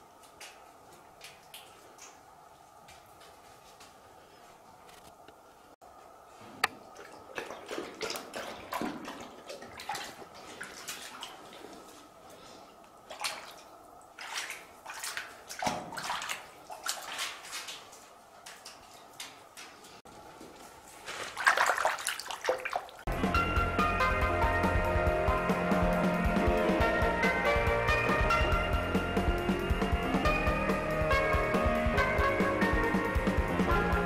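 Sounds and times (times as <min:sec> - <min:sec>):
dog lapping water: 0:06.7 - 0:12.0, 0:13.0 - 0:19.4.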